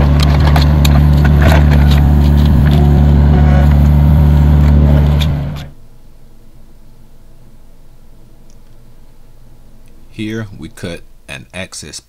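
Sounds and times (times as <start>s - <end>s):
diesel engine running: 0.0s - 5.8s.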